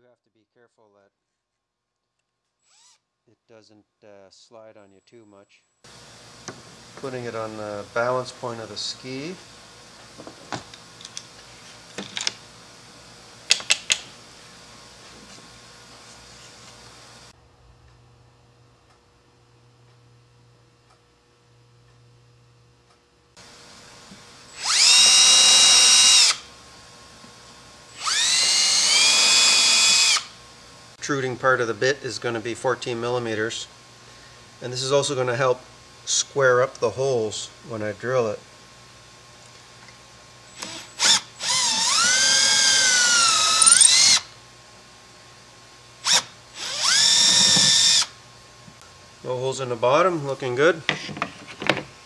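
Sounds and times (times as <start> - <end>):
cordless drill whining: 2.6 - 3.0, 24.5 - 26.5, 27.9 - 30.4, 40.5 - 44.4, 46.0 - 48.1.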